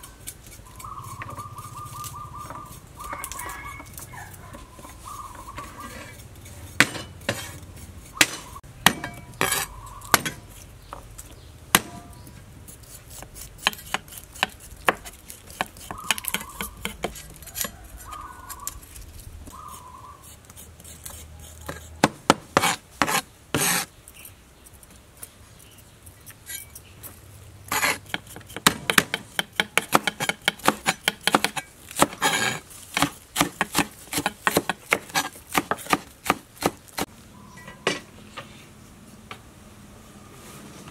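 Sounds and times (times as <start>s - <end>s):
cleaver mincing on wooden board: 0.0s - 10.7s, 11.8s - 23.9s, 27.7s - 37.1s.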